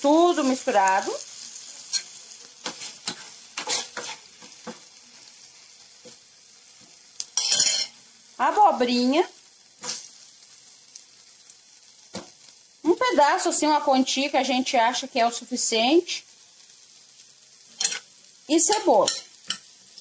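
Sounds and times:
vegetables sizzling in frying pan: 0.0 - 20.0
metal spoon scraping pan: 1.8 - 4.8, 7.4 - 8.0, 17.8 - 19.7.

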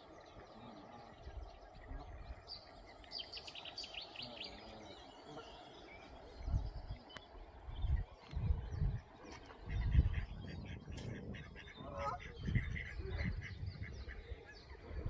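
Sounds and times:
small birds chirping: 0.0 - 15.0
wind rumbling on microphone: 6.2 - 15.0.

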